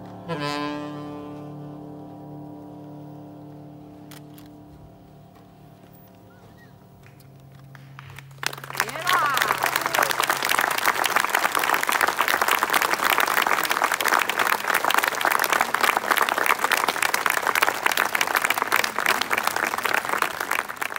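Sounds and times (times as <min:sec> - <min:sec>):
audience applauding: 0:06.6 - 0:20.9.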